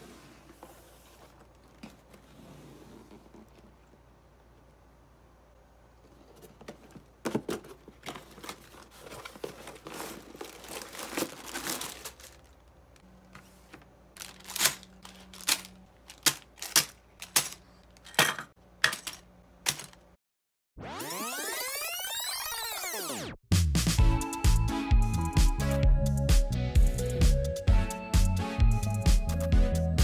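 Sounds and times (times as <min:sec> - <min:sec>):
plastic bags crinkling: 0:08.0 - 0:13.0, 0:14.1 - 0:17.6.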